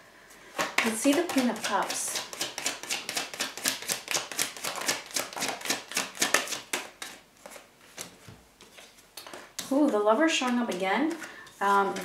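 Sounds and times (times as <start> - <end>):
cards being shuffled: 0.6 - 9.5.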